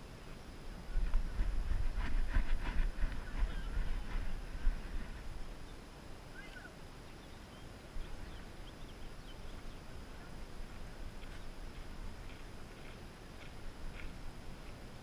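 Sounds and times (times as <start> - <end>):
wind and movement rumble: 0.0 - 6.7
faint high chirps: 5.6 - 10.4.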